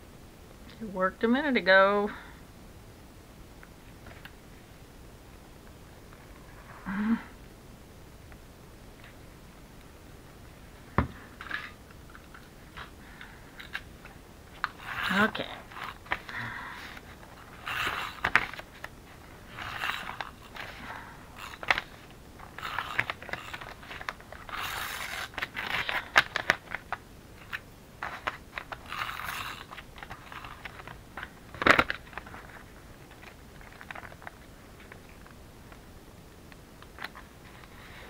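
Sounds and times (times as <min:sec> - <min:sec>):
paper bag crinkling: 0:14.5 - 0:34.5
tape runner scraping: 0:14.6 - 0:18.9, 0:19.5 - 0:32.5.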